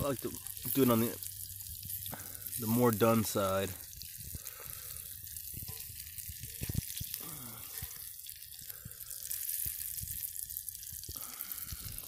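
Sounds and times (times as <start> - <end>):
fish frying in hot oil: 0.0 - 12.0
oil popping and crackling: 0.0 - 12.0.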